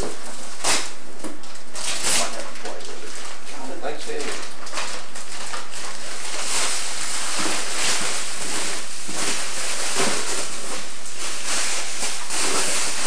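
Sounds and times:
bubble wrap crinkling and rustling: 0.0s - 13.0s.

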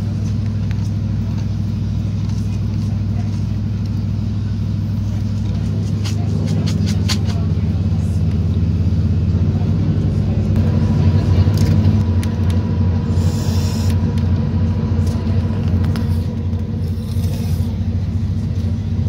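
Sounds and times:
diesel railcar rumble: 0.0s - 19.0s
brief hissing: 13.1s - 14.0s, 16.8s - 17.8s.

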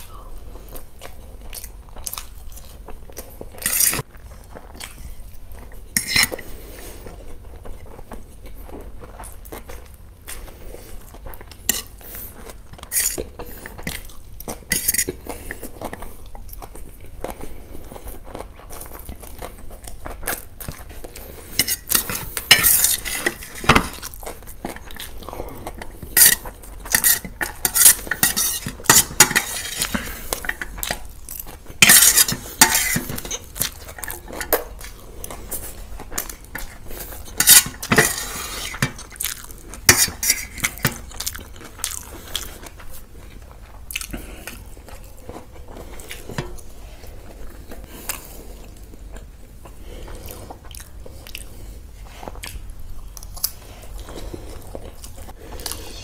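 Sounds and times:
chewing and crunching: 0.0s - 56.0s
cutlery clinking on plates: 21.6s - 24.0s, 26.2s - 31.0s, 31.8s - 34.6s, 37.3s - 39.1s, 39.9s - 41.0s.

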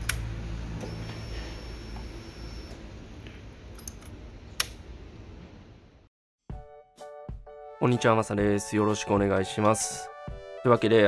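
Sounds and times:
faint high whine: 0.8s - 3.0s.

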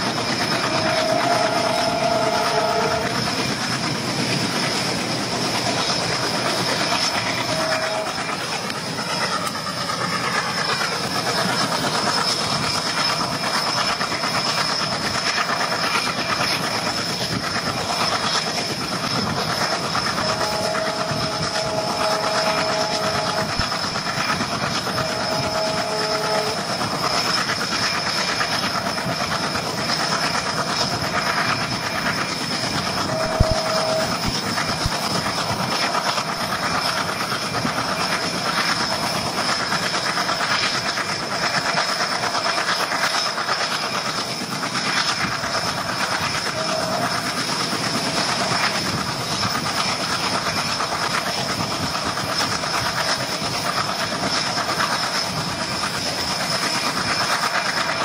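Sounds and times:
train horn: 0.0s - 3.4s, 5.6s - 9.6s, 19.8s - 27.3s, 32.9s - 34.9s, 46.1s - 47.4s
train wheels rumbling on track: 0.0s - 58.0s.

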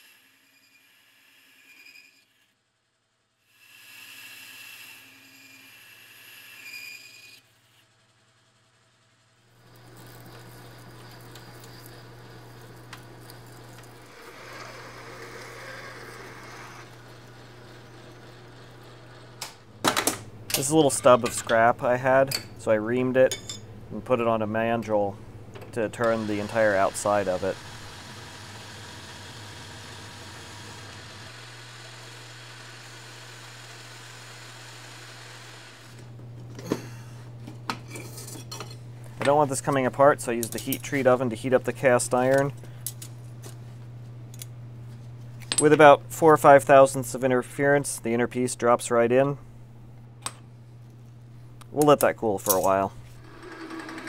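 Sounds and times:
metal lathe humming: 9.6s - 24.1s, 24.7s - 36.1s, 52.5s - 54.0s
cutting tool hiss: 26.0s - 35.9s.

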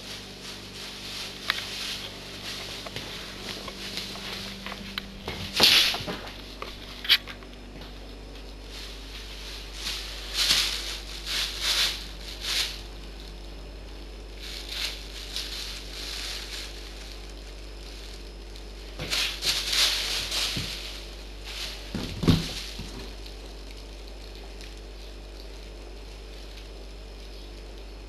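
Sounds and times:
plastic bag rustling and crinkling: 0.0s - 28.0s
dull thump: 21.9s - 23.0s.

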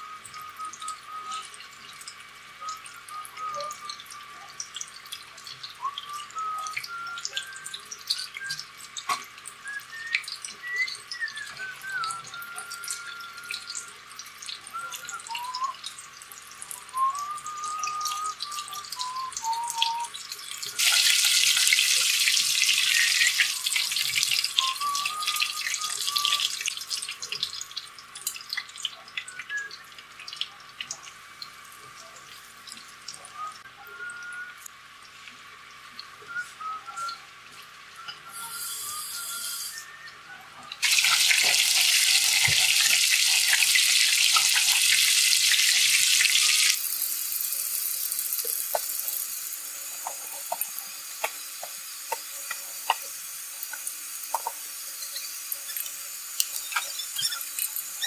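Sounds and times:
man whistling a slow melody: 0.0s - 1.7s, 2.5s - 4.7s, 5.3s - 8.8s, 9.5s - 15.9s, 16.6s - 20.2s, 20.8s - 27.4s, 29.2s - 30.0s, 33.1s - 34.7s, 36.2s - 37.3s, 37.9s - 43.7s
deep-frying crackling sizzle: 0.0s - 58.0s.

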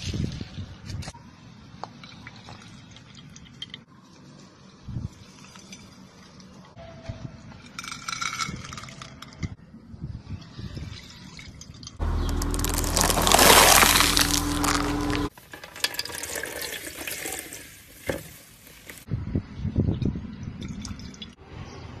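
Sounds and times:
wet foam crunching and squishing: 12.0s - 15.3s.

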